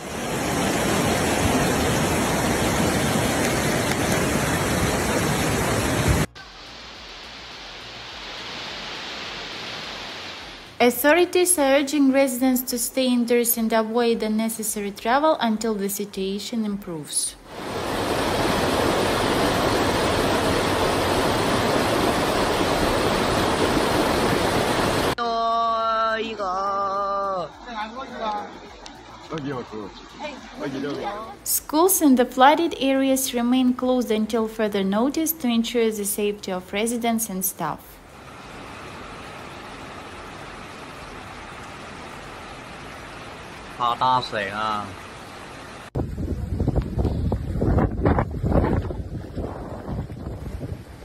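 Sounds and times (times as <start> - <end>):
floodwater rushing down river: 0.0 - 10.8, 17.4 - 25.2, 38.0 - 47.4
heavy rain: 0.0 - 10.8, 17.5 - 25.2, 38.0 - 47.1.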